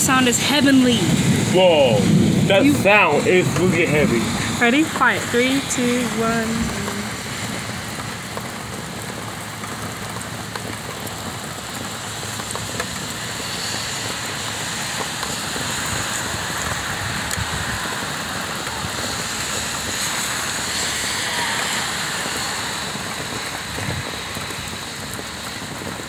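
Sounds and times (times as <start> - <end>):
heavy rain on pavement: 0.0 - 26.0.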